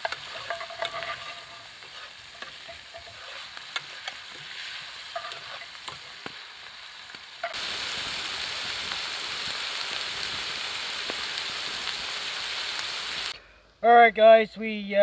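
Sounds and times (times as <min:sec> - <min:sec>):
utensil scraping pan: 0:00.0 - 0:06.3
food sizzling in skillet: 0:00.0 - 0:13.4.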